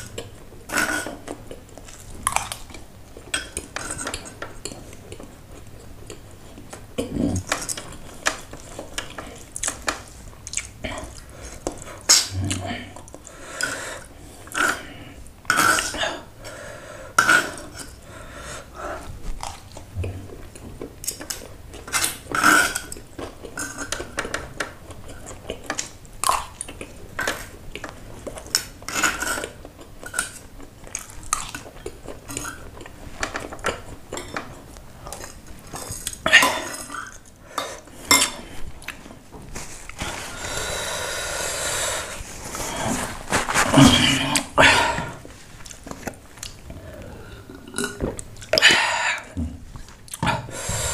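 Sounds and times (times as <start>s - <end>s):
steady hiss: 50.4s - 50.9s.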